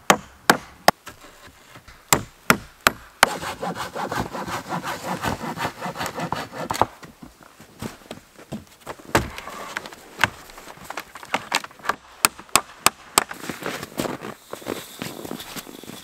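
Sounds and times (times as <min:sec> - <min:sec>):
hammer striking wood: 0:00.0 - 0:01.1, 0:02.0 - 0:06.9, 0:09.1 - 0:09.5, 0:12.2 - 0:13.3
shuffling: 0:07.1 - 0:12.0, 0:13.3 - 0:16.0.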